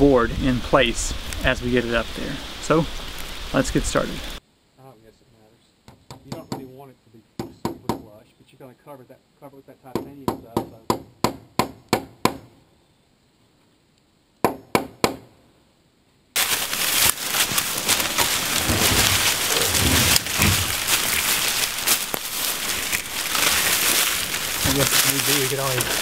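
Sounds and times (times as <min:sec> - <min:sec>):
hammer driving a nail into wood: 0:10.0 - 0:12.5, 0:14.4 - 0:15.2.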